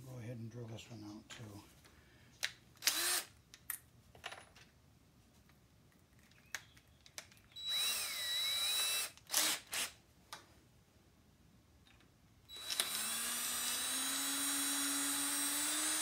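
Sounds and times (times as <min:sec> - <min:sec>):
cordless drill whining: 0:02.8 - 0:03.3, 0:07.5 - 0:10.0, 0:12.5 - 0:16.0.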